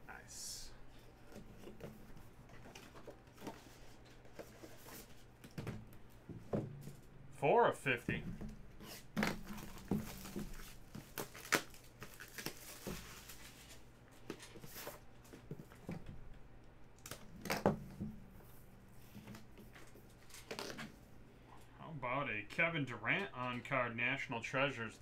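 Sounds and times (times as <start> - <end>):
plastic shrink wrap crinkling: 8.8 - 13.9.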